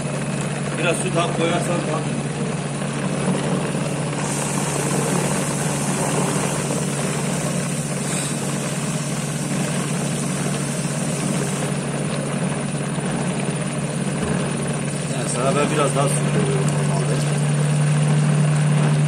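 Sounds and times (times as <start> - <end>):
electric mixer motor humming: 0.0 - 19.0.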